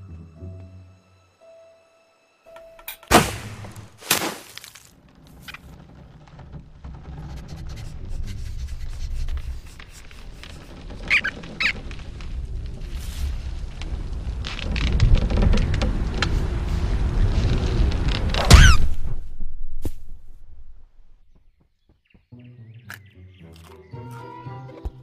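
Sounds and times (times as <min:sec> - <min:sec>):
sharp hits: 0:03.0 - 0:04.8
high squeaks: 0:07.2 - 0:12.4, 0:18.4 - 0:19.0
low rumble: 0:11.8 - 0:21.3.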